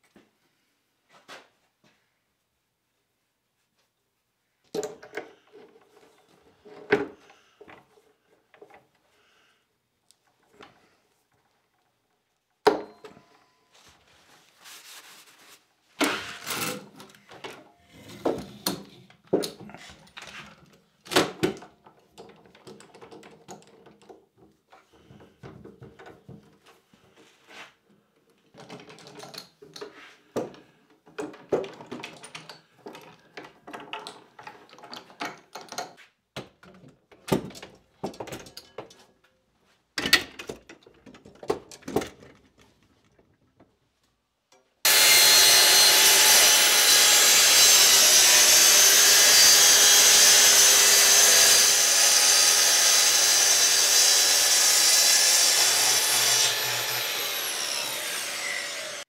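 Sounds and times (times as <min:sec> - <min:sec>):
clamps clicking and knocking: 0:20.6 - 0:24.6, 0:28.4 - 0:39.1
track saw running: 0:44.9 - 0:59.0.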